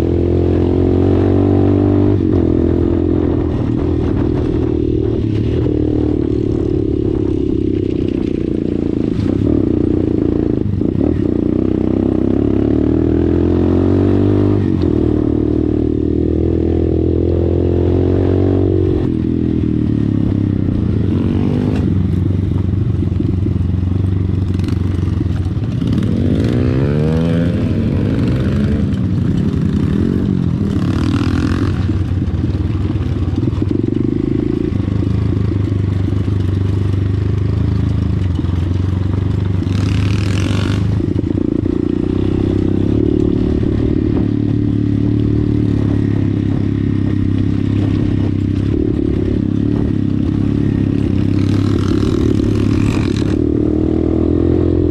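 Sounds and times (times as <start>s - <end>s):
dirt bike engine revving: 24.5s - 32.8s, 39.6s - 54.9s.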